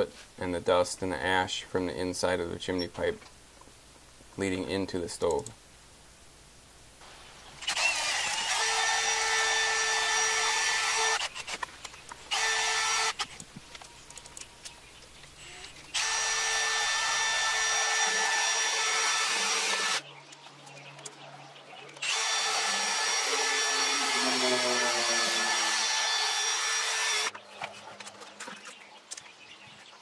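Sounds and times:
drill motor whine: 7.6 - 11.6, 12.3 - 13.3, 15.4 - 20.0, 22.0 - 27.3.

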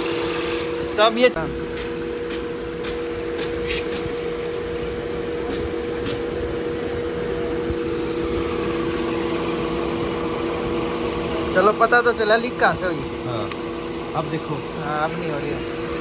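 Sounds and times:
car engine idling: 0.0 - 16.0
brief high hisses: 3.6 - 4.0.

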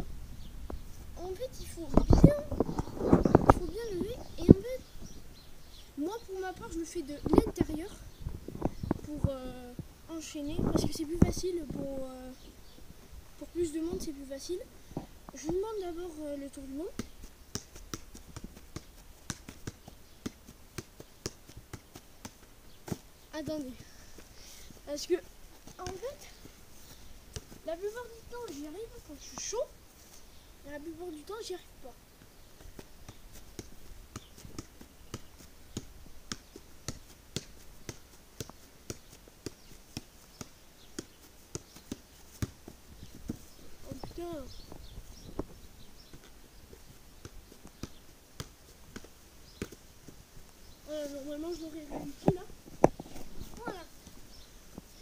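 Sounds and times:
football knocking on foot: 16.9 - 23.0, 32.6 - 44.2.

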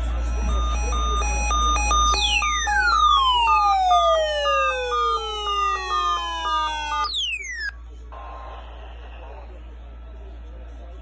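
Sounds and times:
two-tone electronic beep: 0.0 - 7.8
falling siren-like sweep: 0.7 - 7.7.

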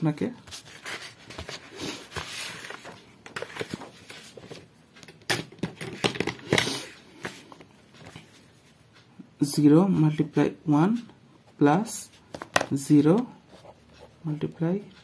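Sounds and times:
paper rustling and sliding: 0.5 - 4.7.

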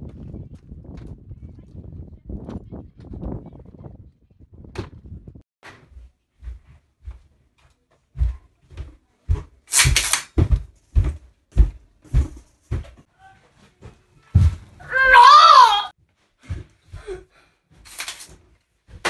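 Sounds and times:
footsteps thumping on floor: 5.6 - 13.1, 13.8 - 14.8, 16.4 - 17.1.

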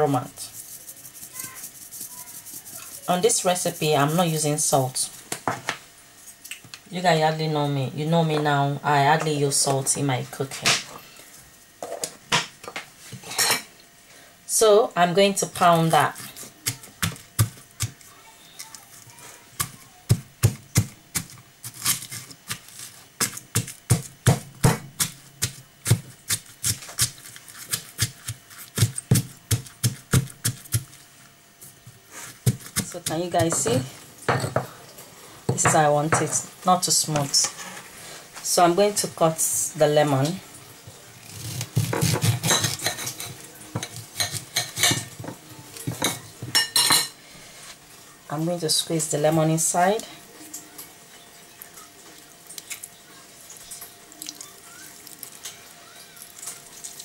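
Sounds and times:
stone pestle pounding in mortar: 23.2 - 27.1, 27.7 - 30.8.

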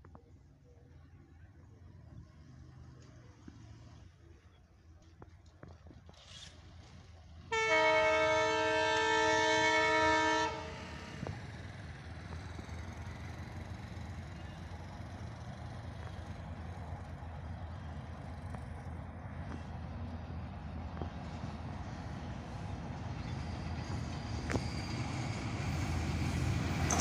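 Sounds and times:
train rumbling: 1.1 - 27.0
train air horn blast: 7.5 - 11.1.

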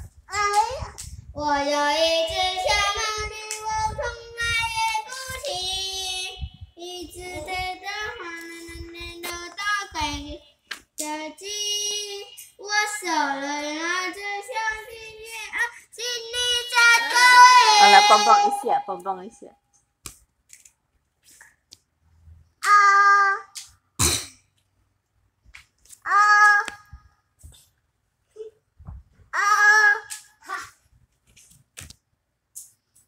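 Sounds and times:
girl singing into microphone: 0.0 - 18.9.

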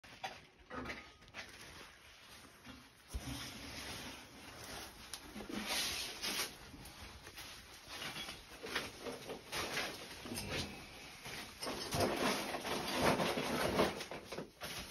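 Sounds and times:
coverall rustling: 0.0 - 14.9.

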